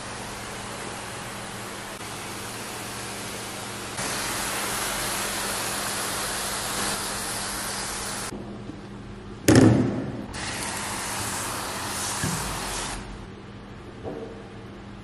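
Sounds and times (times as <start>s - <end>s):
pressure sprayer hissing: 0.0s - 8.3s, 10.4s - 13.2s.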